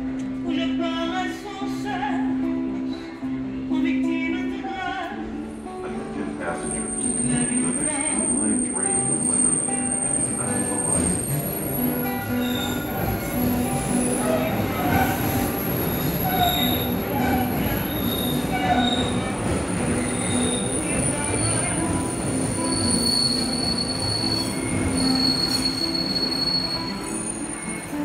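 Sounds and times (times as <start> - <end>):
subway train rumble: 0.0 - 28.0
train wheels squealing: 6.8 - 28.0.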